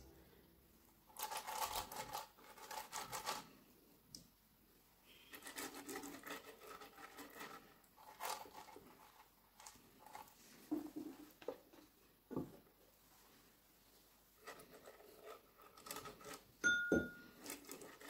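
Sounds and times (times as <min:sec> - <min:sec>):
pastry brush scraping waffle plates: 0:05.1 - 0:10.7, 0:14.4 - 0:16.6, 0:17.3 - 0:18.0.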